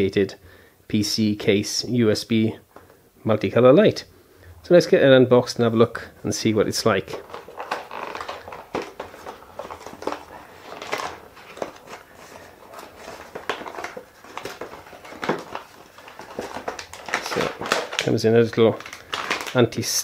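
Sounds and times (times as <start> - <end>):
cardboard box being opened: 7.1 - 18.0.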